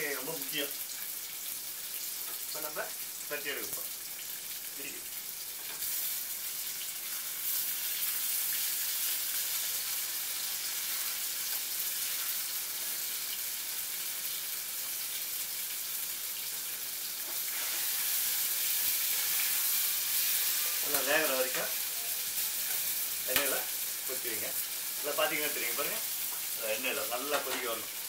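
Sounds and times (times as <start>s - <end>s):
vegetables sizzling in hot oil: 0.0s - 28.0s
spatula stirring in a pan: 16.4s - 25.2s.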